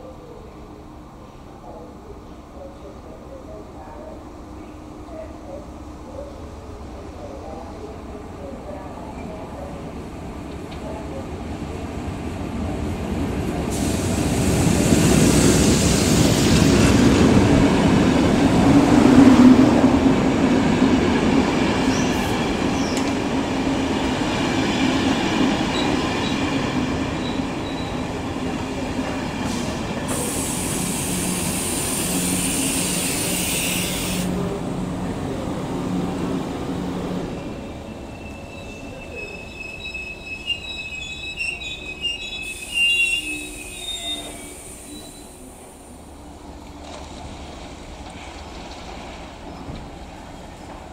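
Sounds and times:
train passing: 0.0 - 50.9
train hiss: 13.5 - 18.6, 28.9 - 34.5, 41.8 - 46.5
high brake squeals: 37.5 - 45.5.

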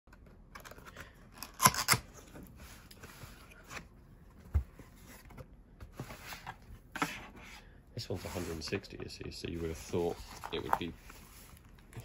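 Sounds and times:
cardboard rustling: 9.5 - 12.0.

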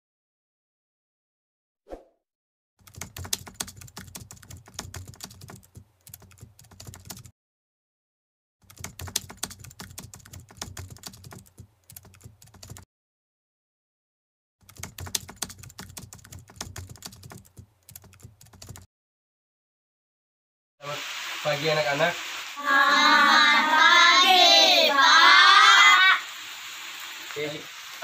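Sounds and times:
keyboard typing clicks: 2.8 - 7.3, 8.6 - 12.8, 14.6 - 18.9.

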